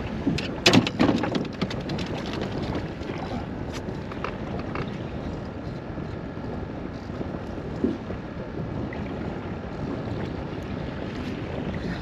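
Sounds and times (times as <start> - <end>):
water against small boat: 0.0 - 12.0
wind buffeting microphone: 0.0 - 12.0
loud knocks and clatter: 0.6 - 2.6.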